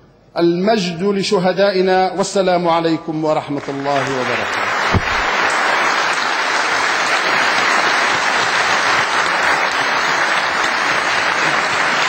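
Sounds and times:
audience applause: 3.6s - 12.0s.

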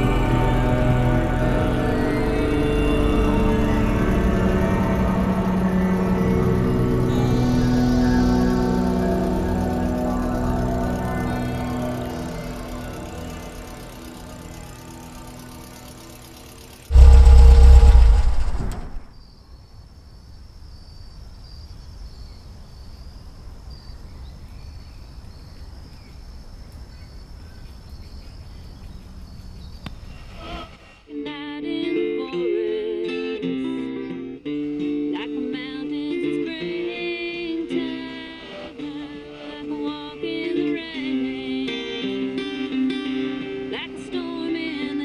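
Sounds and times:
low steady rumble: 4.0s - 19.2s.

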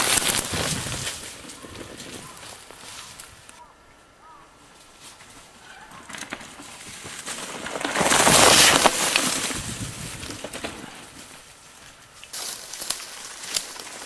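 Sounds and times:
bike tyres crunching on dirt: 0.0s - 14.0s
bike clicks: 5.8s - 11.4s.

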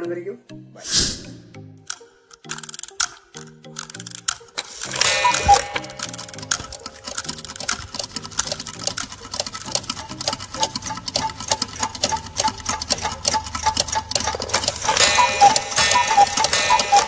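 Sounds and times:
fast mechanical ticking: 3.8s - 17.0s.

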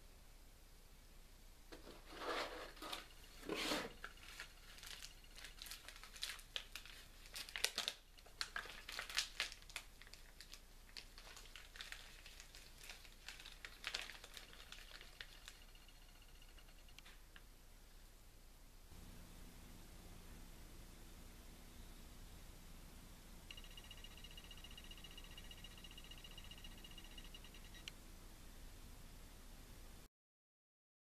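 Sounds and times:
paper crinkling: 1.9s - 15.8s.

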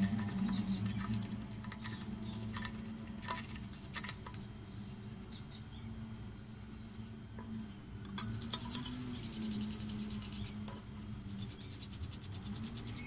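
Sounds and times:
paintbrush scrubbing metal: 0.0s - 4.4s, 8.2s - 13.0s
steady low hum: 0.0s - 13.0s.

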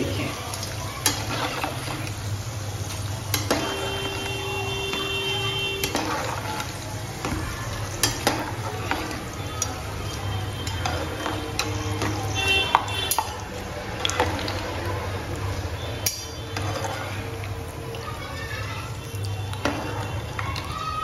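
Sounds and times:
oil sizzling while deep-frying: 0.0s - 21.0s
metal utensils scraping a pan: 1.0s - 13.5s, 15.8s - 17.4s.

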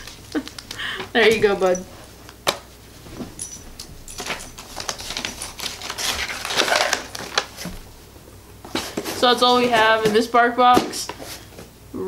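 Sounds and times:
clicks and taps: 0.0s - 2.6s
paper and cardboard rustling: 4.2s - 8.0s, 8.6s - 11.6s.

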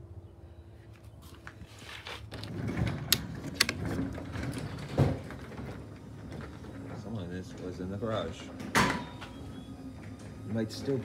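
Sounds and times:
garage door rattling: 2.4s - 11.0s.

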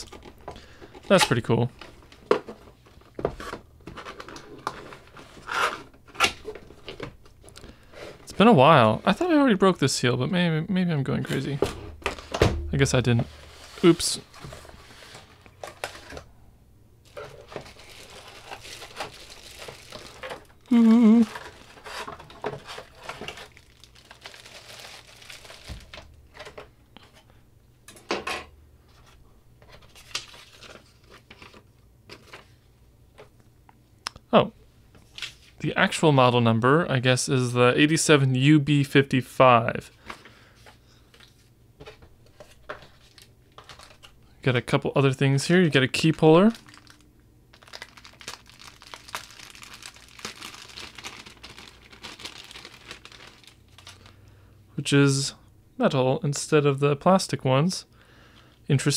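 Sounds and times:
paper rustling: 17.1s - 20.5s, 28.9s - 32.5s, 47.6s - 54.2s
plastic wrap crinkling: 17.1s - 26.6s, 42.4s - 44.2s, 45.8s - 54.2s.

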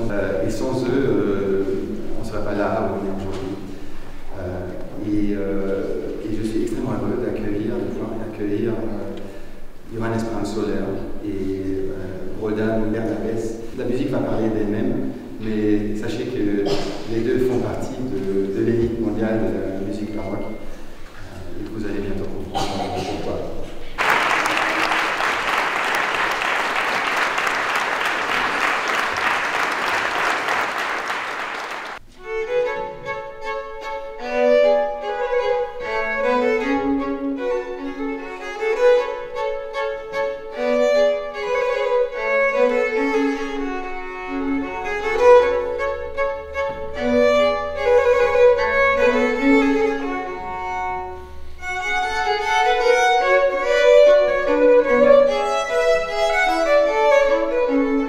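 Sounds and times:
audience applause: 24.0s - 32.0s
two violins playing baroque duet: 32.2s - 58.0s.

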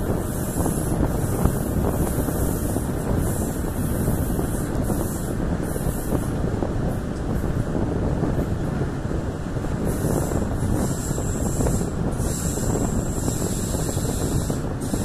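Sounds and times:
passenger train running: 0.0s - 15.0s
wind buffeting microphone: 0.0s - 15.0s.

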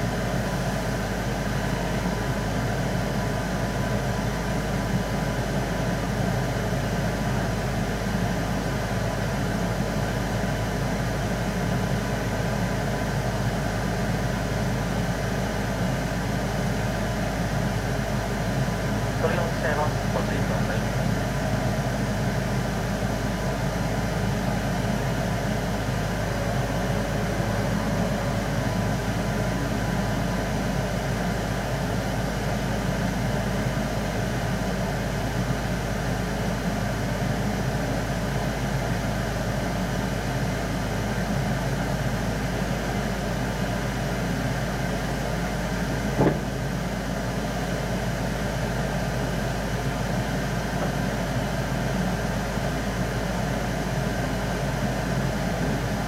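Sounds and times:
sharp knock: 46.2s - 46.6s.

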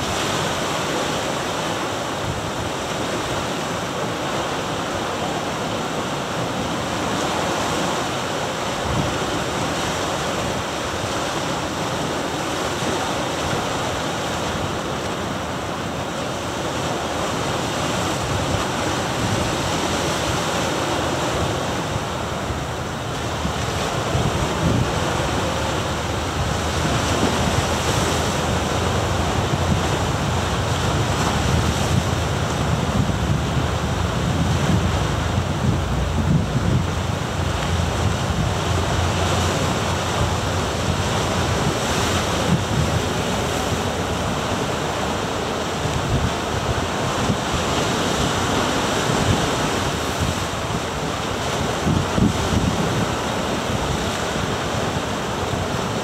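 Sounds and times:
surf breaking on rocks: 0.0s - 56.0s
wind buffeting microphone: 17.5s - 56.0s.

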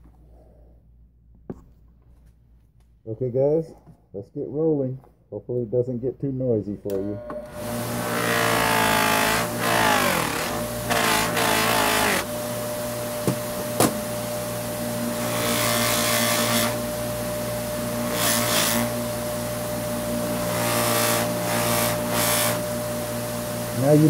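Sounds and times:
bench buffer motor humming: 6.8s - 24.0s.

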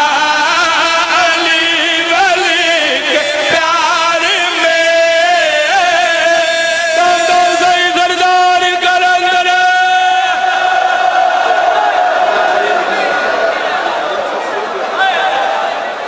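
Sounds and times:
man chanting with vibrato: 0.0s - 11.1s.

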